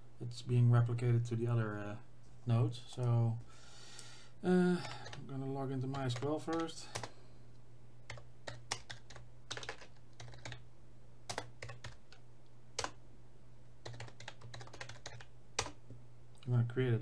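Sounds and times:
typing on computer keyboard: 4.8 - 5.2, 5.9 - 7.1, 8.1 - 10.6, 11.3 - 12.2, 12.8 - 13.0, 13.8 - 15.8.

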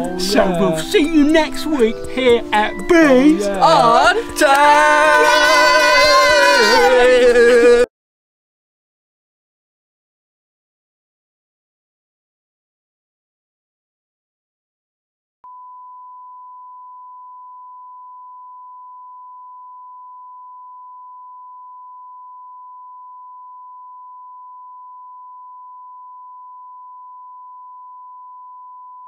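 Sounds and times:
steady pure test tone: 0.0 - 5.6.

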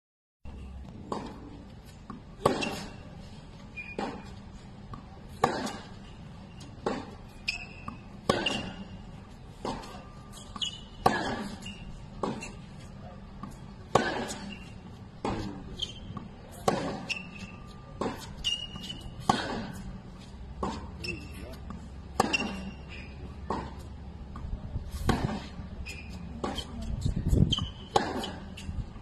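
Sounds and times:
racket hitting tennis ball: 0.8 - 29.0
ball bouncing on hard court: 6.8 - 9.0, 13.4 - 19.9, 20.6 - 22.8, 25.0 - 28.7.

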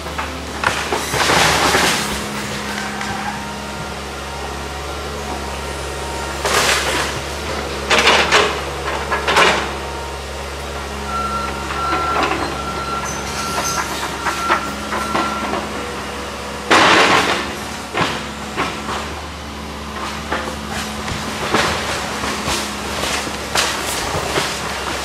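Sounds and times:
high hydraulic whine: 0.0 - 19.0
excavator diesel engine: 0.0 - 25.0
wood and debris crashing: 0.0 - 25.0.

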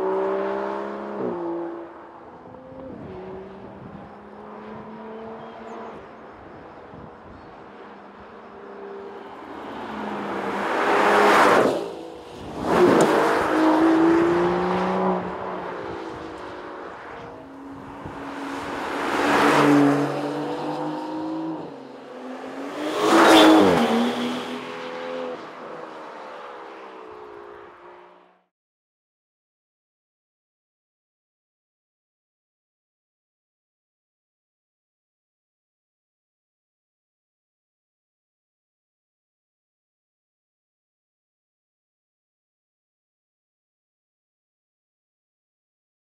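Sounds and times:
car accelerating and passing by: 0.0 - 28.4.

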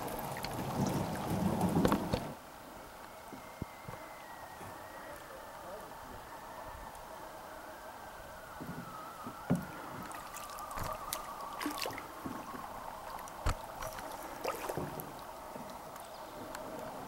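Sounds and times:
paddle splashing water: 0.0 - 2.4, 9.2 - 17.0
paddle knocking against canoe: 9.4 - 15.7.

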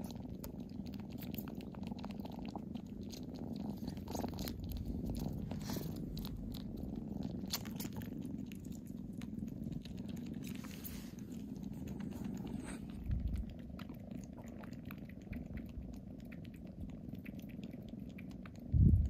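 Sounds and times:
kittens purring: 0.0 - 19.0
kitten mouth clicks: 3.1 - 8.1.

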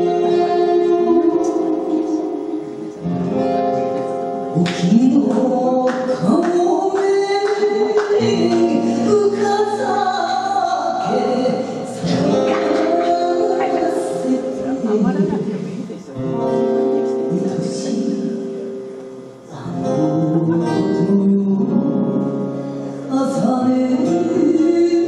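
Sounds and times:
woman singing wavering vocal: 5.2 - 15.5.

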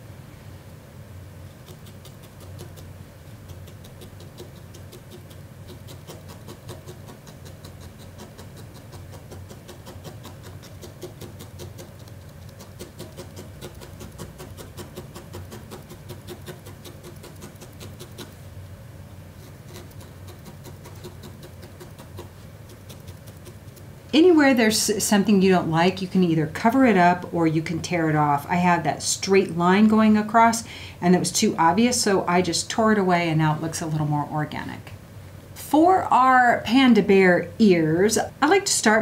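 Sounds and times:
felting needle stabbing wool: 1.6 - 18.3.

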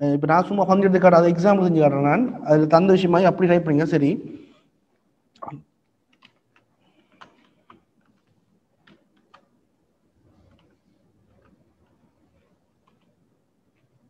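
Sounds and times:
keyboard keys clicking: 6.1 - 9.5, 10.5 - 13.9.

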